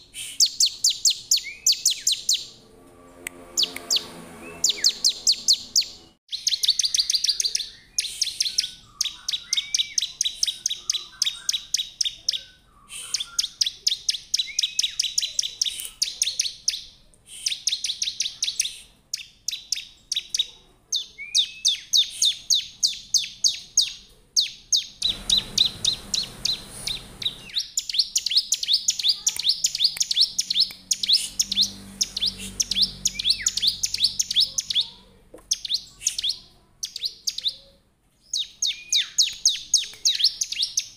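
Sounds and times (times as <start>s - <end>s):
bird singing sharp chip notes: 0.4s - 12.1s, 25.0s - 34.9s.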